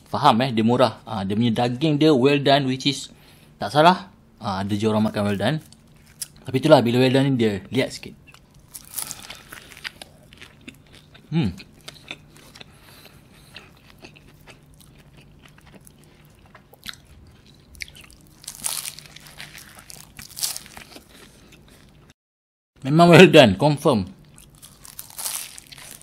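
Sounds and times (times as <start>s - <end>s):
pastry crunching while chewed: 8.3s - 22.1s, 24.2s - 26.0s.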